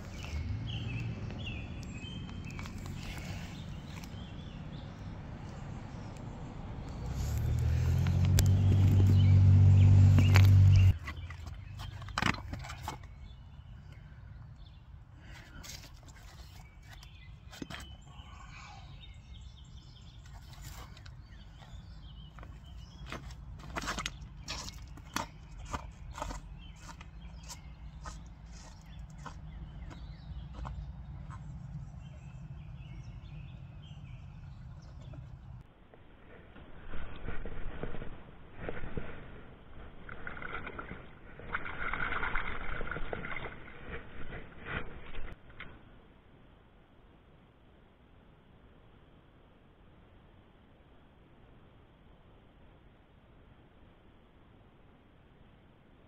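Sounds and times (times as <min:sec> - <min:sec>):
faint bird chirps: 0:13.0 - 0:23.1.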